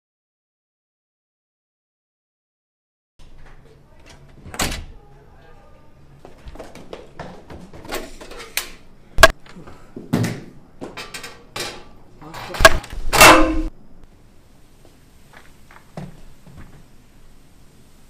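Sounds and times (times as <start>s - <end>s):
sharp knocks and clattering bangs: 12.5s - 13.7s.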